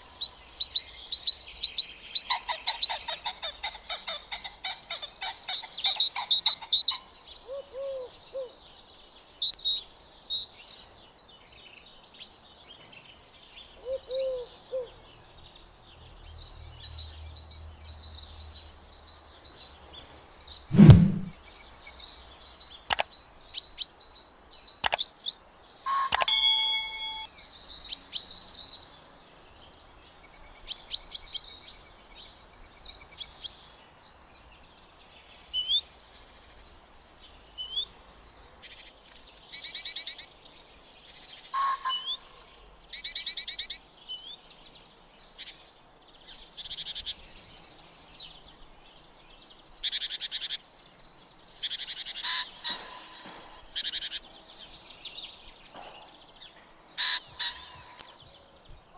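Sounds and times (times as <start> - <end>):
songbirds singing: 0.0 - 58.9
click and ringing chime: 26.1 - 27.3.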